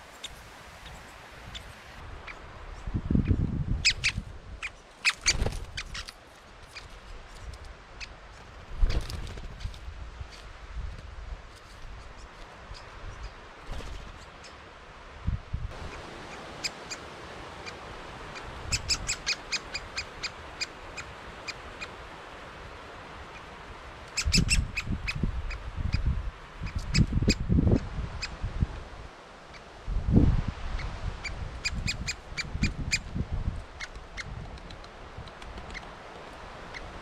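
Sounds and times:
woodpeckers calling: 0:03.8 - 0:06.9, 0:15.8 - 0:22.0, 0:30.8 - 0:37.0.

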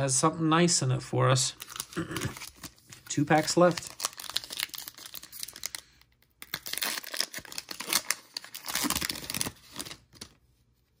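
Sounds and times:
wrapper tearing and crinkling: 0:01.6 - 0:10.3.

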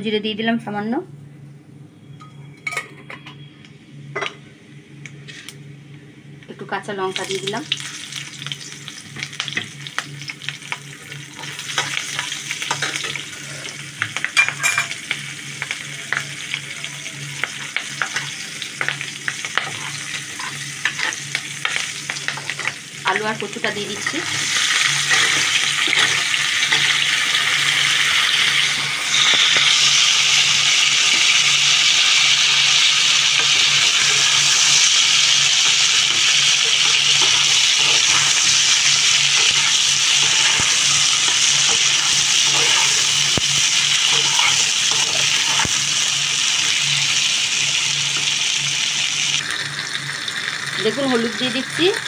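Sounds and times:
food sizzling in hot oil: 0:06.9 - 0:52.0.

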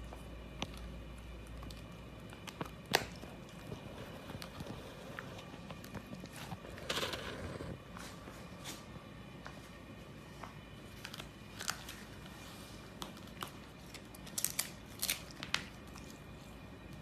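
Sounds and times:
dog chewing plant stalk crunches: 0:13.0 - 0:16.2.

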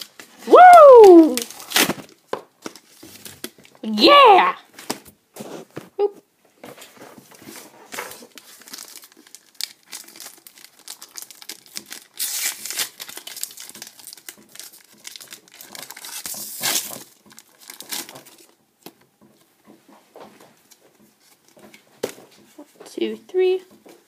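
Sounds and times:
foil wrapper crinkling: 0:01.0 - 0:03.8, 0:08.0 - 0:19.0
foil pack tearing open: 0:01.1 - 0:03.6, 0:08.2 - 0:18.5.

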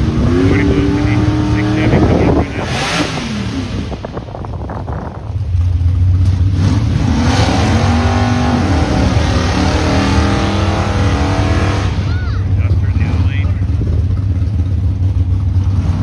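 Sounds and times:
drag car engines revving high: 0:00.0 - 0:16.0.

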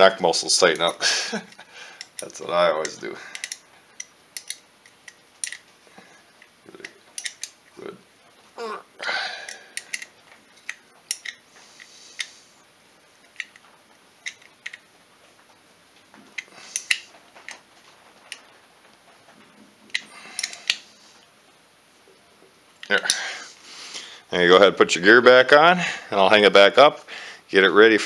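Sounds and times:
wrench clicking on metal: 0:02.0 - 0:05.6.

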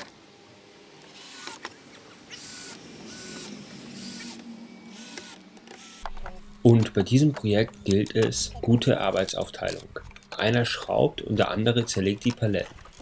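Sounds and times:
cordless drill whirring: 0:01.0 - 0:06.6.

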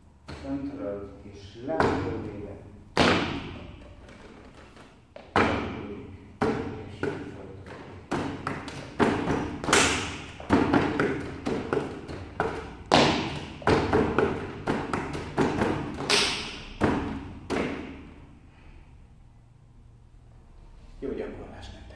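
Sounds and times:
sharp wooden knocks: 0:01.7 - 0:02.3, 0:02.9 - 0:18.1.

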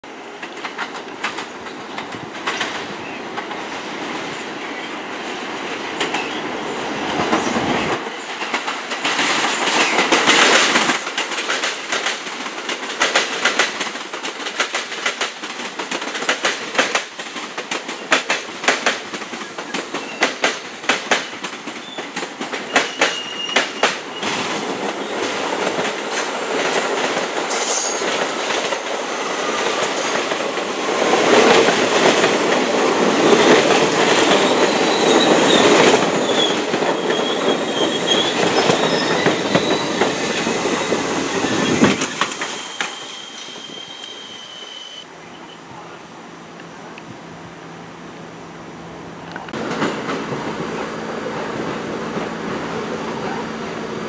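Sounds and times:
subway train rumble: 0:00.0 - 0:54.0
wheels clacking over rail joints: 0:00.3 - 0:04.3, 0:05.6 - 0:43.1
high wheel squeal: 0:22.7 - 0:24.3, 0:34.3 - 0:45.5.

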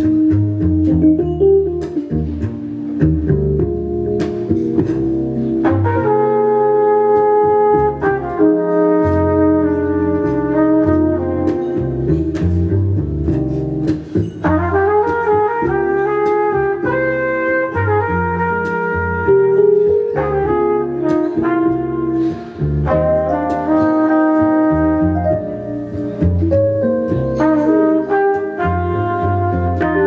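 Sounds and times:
double bass walking: 0:00.0 - 0:30.0
piano accompaniment: 0:00.0 - 0:30.0
flugelhorn melody: 0:05.5 - 0:12.3, 0:14.4 - 0:26.0, 0:26.6 - 0:30.0.

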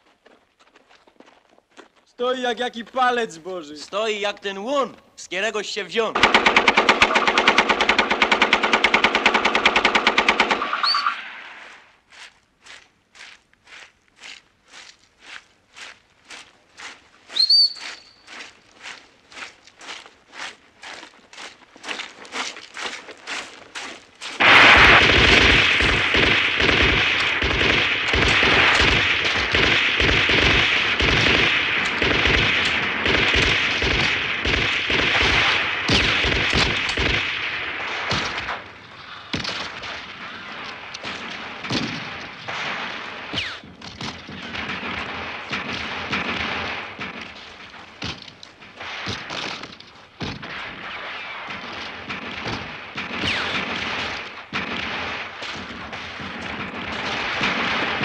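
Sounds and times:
rifle gunfire: 0:06.2 - 0:11.0, 0:24.4 - 0:38.6, 0:44.3 - 0:58.0.

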